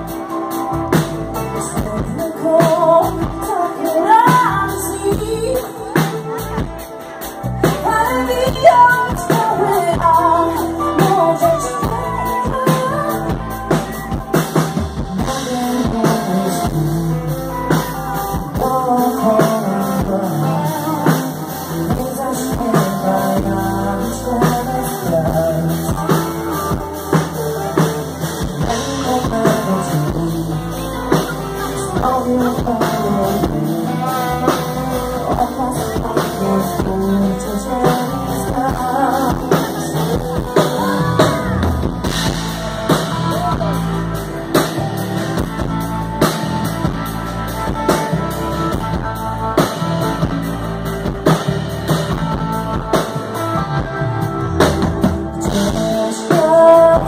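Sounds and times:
bass guitar: 0:00.0 - 0:57.0
drum kit: 0:00.0 - 0:57.0
electric guitar: 0:00.0 - 0:57.0
woman singing into microphone: 0:01.5 - 0:14.2, 0:15.0 - 0:42.5, 0:55.4 - 0:57.0.

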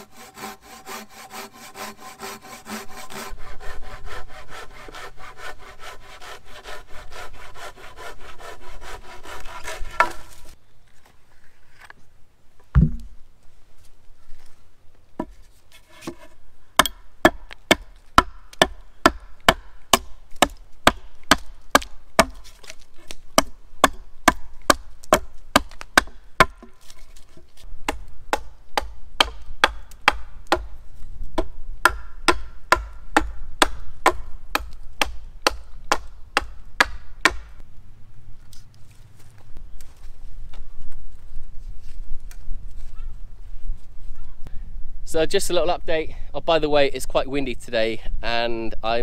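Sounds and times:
hatchet chopping wood: 0:04.1 - 0:10.4, 0:16.8 - 0:26.9, 0:27.9 - 0:30.8, 0:31.4 - 0:37.6.

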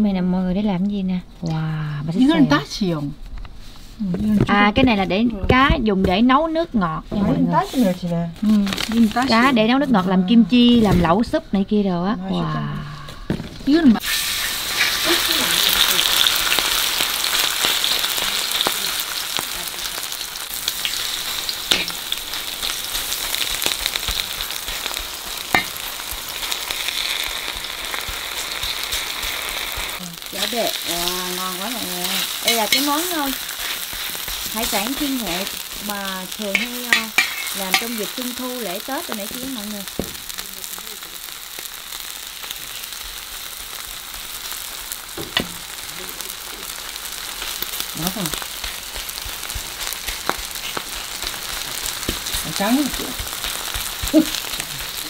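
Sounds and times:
seafood sizzling in hot oil: 0:07.4 - 0:11.8, 0:13.0 - 0:55.0
oil popping: 0:20.6 - 0:55.0.

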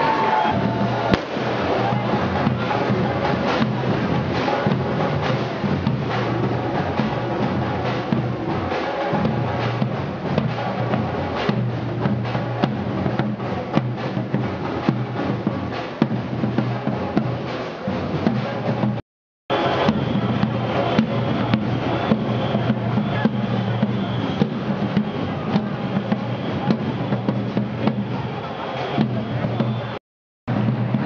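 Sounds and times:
marching snare drums: 0:00.0 - 0:31.0.

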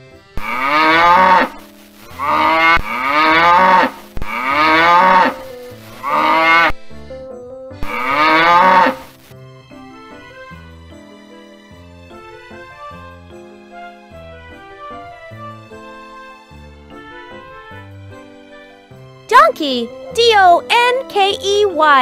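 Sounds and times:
soft background music: 0:00.0 - 0:22.0
cattle mooing: 0:00.4 - 0:06.8, 0:07.8 - 0:09.1.

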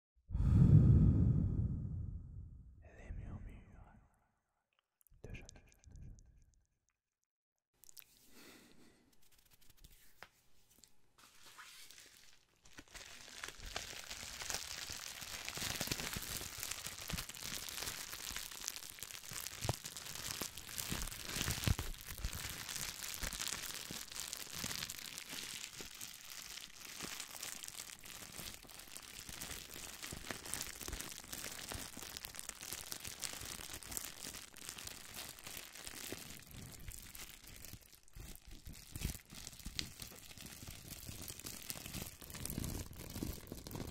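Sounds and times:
bubble wrap crinkling: 0:09.2 - 0:43.9.

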